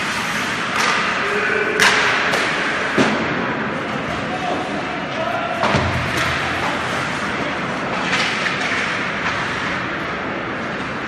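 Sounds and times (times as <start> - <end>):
skates on ice: 0.0 - 11.0
stick and puck knocks: 1.8 - 3.2.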